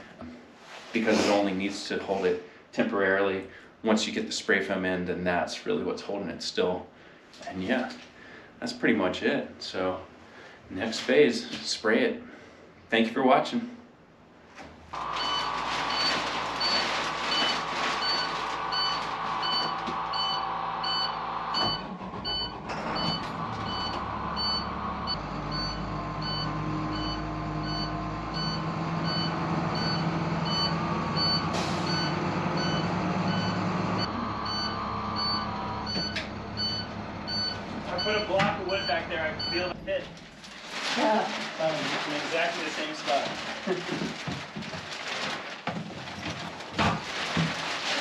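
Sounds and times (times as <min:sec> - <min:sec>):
reversing alarm beeping: 0:15.0 - 0:39.7
engine running: 0:15.0 - 0:40.1.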